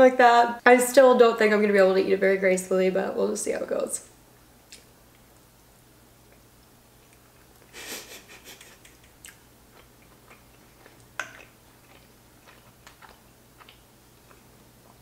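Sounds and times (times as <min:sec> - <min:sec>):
soft chewing: 0:04.4 - 0:15.0
lip clicks: 0:04.7 - 0:05.5, 0:08.6 - 0:09.4.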